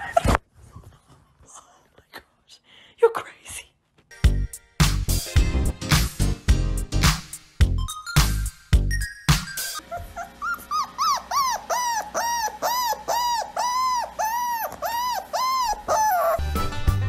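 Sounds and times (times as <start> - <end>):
puppy whimpering: 9.8 - 16.7.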